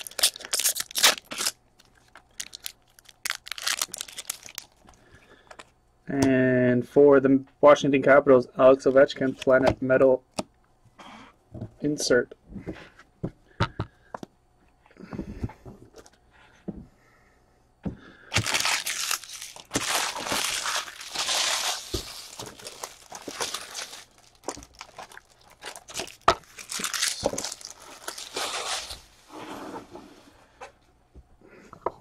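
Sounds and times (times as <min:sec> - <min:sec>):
plastic wrapping crinkling and tearing: 0:00.0 - 0:05.0, 0:18.3 - 0:29.2.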